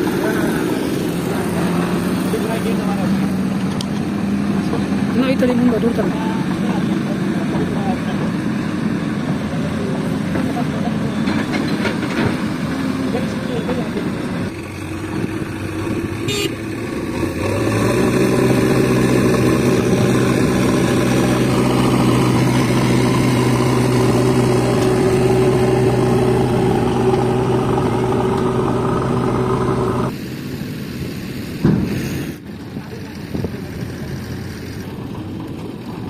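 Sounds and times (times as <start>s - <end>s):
heavy diesel engine revving: 12.1s - 30.2s
thump: 31.6s - 32.0s.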